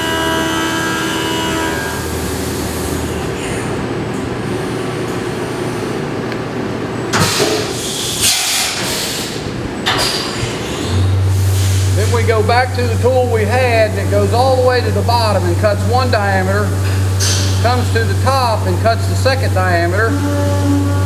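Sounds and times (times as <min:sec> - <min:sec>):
coolant spray and machine noise: 0:00.0 - 0:06.1, 0:06.9 - 0:21.0.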